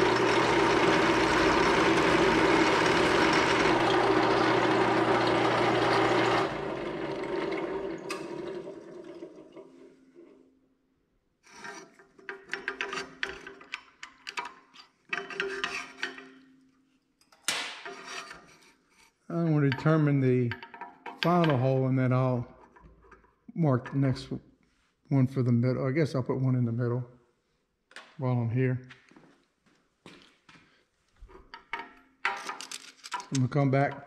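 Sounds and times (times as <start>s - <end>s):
motor spinning down: 0.0s - 8.6s
drill press cutting metal: 0.0s - 8.7s
metal clinks and scrapes: 11.4s - 16.6s, 31.2s - 33.5s.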